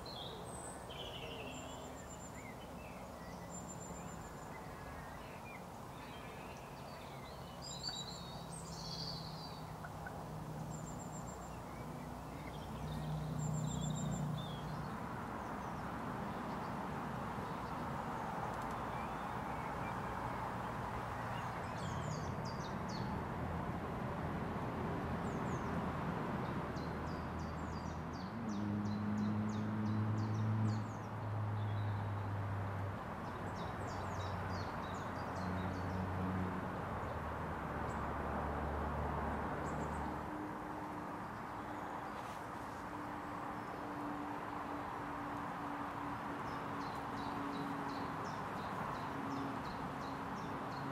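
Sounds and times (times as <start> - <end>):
small birds chirping: 0.0 - 20.3, 41.1 - 50.9.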